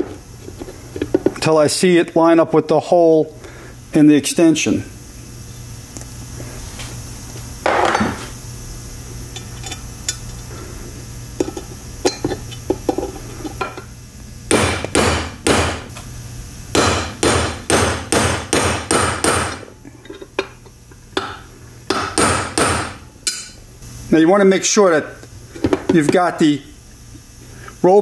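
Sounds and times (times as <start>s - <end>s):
hammer striking metal pin: 14.5s - 15.8s, 16.8s - 19.6s.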